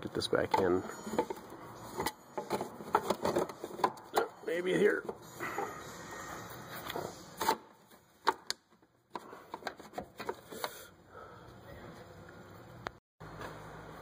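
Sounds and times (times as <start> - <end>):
metal parts knocking and scraping: 0.4 - 4.2.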